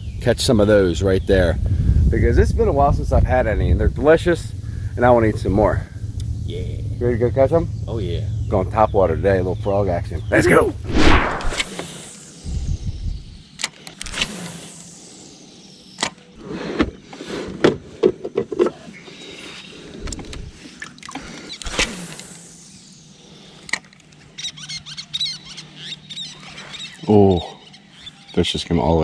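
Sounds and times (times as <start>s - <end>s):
faint low hum: 0.0s - 11.6s
small high squeaks: 11.4s - 15.1s, 18.8s - 28.6s.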